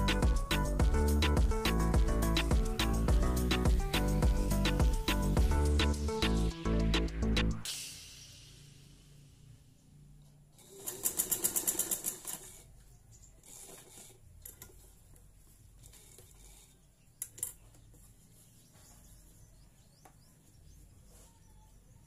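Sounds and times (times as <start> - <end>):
faint handling sounds: 10.2 - 21.7
sewing machine stitching: 10.5 - 12.7, 13.4 - 14.8.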